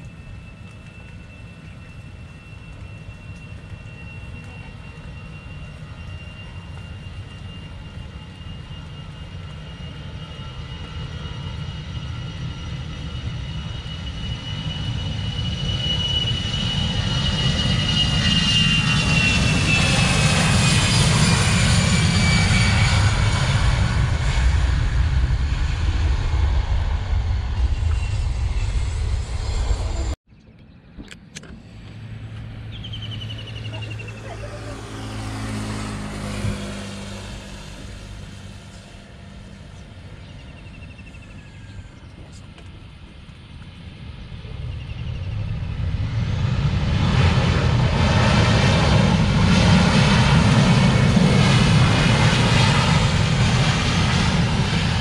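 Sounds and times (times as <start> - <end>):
high engine whine: 0.0 - 55.0
jet engines roaring at takeoff: 0.0 - 55.0
motorcycle passing: 32.0 - 39.7.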